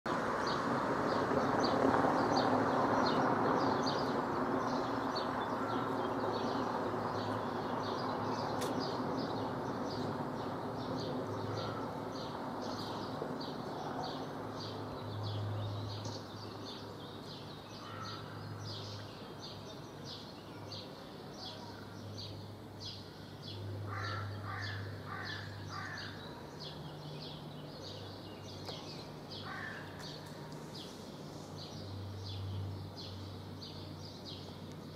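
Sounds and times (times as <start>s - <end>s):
outdoor background noise: 0.1s - 34.9s.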